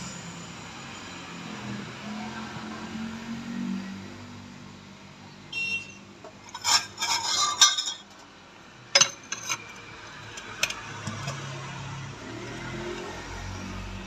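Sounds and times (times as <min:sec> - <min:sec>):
metal parts clinking: 0:06.5 - 0:08.3, 0:08.9 - 0:11.4.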